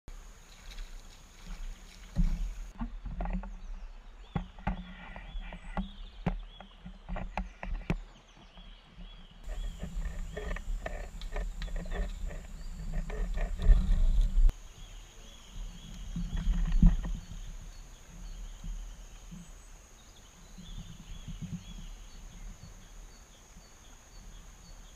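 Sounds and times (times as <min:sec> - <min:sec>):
water splashing around kayak: 0:00.1 - 0:08.1.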